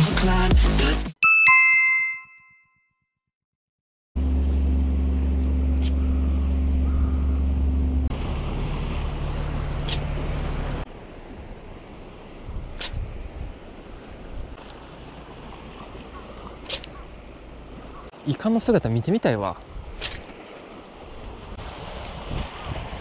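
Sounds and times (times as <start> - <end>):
bright chime: 1.2 - 2.9
low rumble: 4.2 - 13.6.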